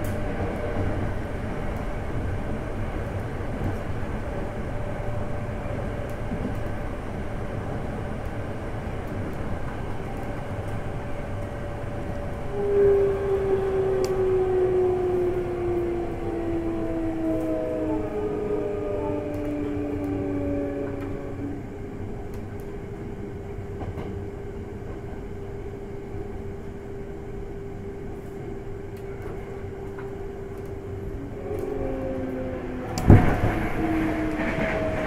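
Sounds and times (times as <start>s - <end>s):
train wheels rumbling on track: 0.0s - 35.0s
electric train motor whine: 10.6s - 22.2s, 28.7s - 35.0s.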